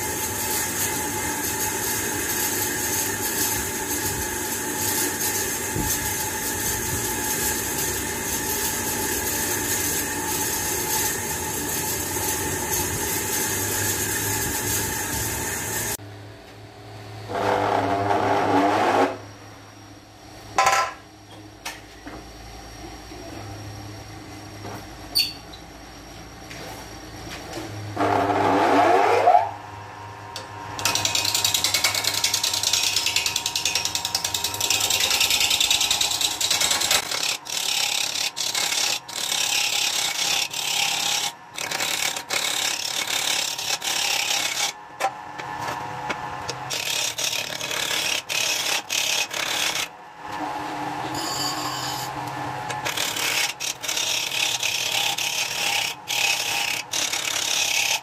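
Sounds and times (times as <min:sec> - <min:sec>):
wood lathe whine: 0:00.0 - 0:16.0, 0:28.0 - 0:29.6, 0:30.3 - 0:58.0
turning tool scraping spinning wood: 0:30.8 - 0:44.8, 0:46.6 - 0:49.9, 0:51.0 - 0:58.0.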